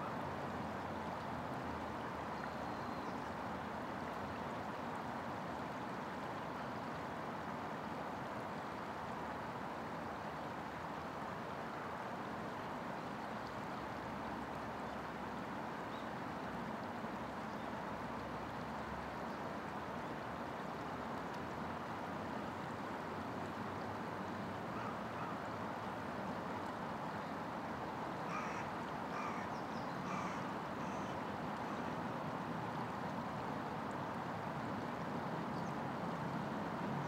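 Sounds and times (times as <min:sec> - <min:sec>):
river water flowing: 0:00.0 - 0:37.0
bird calling: 0:24.8 - 0:25.4, 0:28.3 - 0:31.8.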